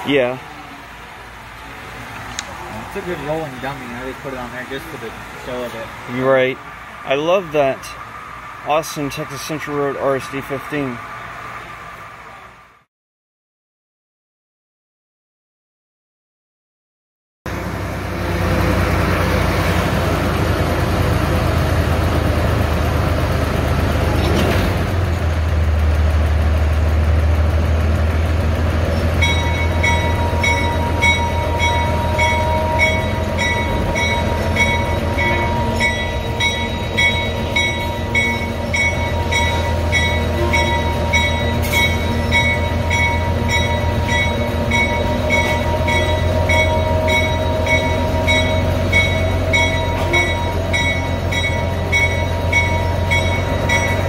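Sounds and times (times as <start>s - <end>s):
diesel locomotive engine droning: 0.0s - 12.9s, 17.5s - 54.0s
locomotive bell ringing: 29.0s - 54.0s.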